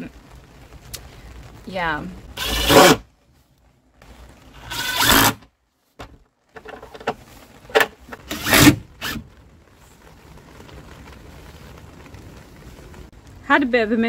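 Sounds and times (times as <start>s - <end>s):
impact driver driving screws: 2.4s - 3.0s, 4.6s - 5.4s, 8.2s - 9.2s.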